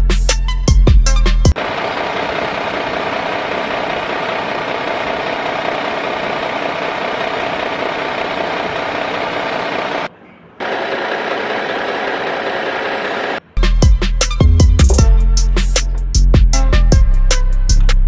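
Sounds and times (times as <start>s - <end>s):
engine running: 1.3s - 13.6s.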